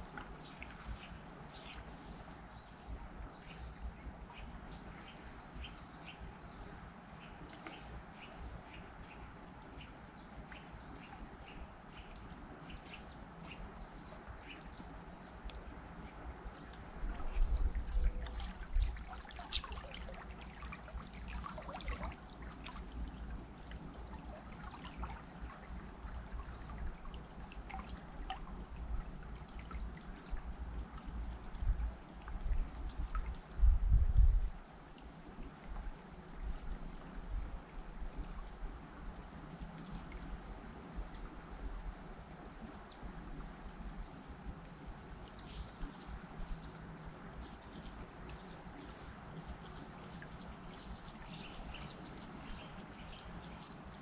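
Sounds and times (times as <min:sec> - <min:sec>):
river water flowing: 0:00.0 - 0:33.6, 0:34.6 - 0:54.0
birds chirping: 0:17.8 - 0:19.7.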